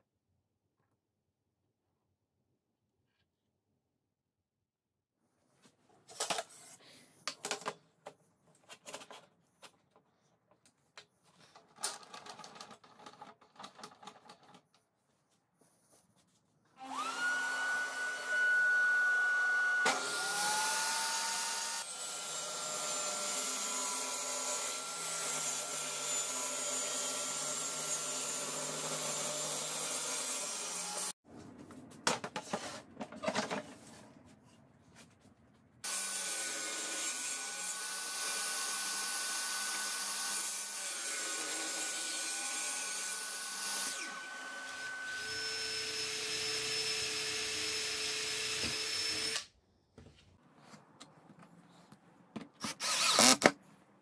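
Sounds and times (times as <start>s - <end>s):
shop vacuum running: 16.8s - 21.8s
table saw cutting wood: 16.8s - 31.2s, 35.9s - 49.5s, 52.6s - 53.5s.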